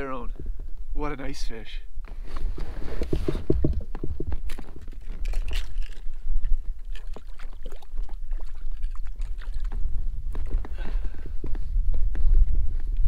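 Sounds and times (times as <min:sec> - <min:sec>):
water sloshing against hull: 0:02.5 - 0:10.7.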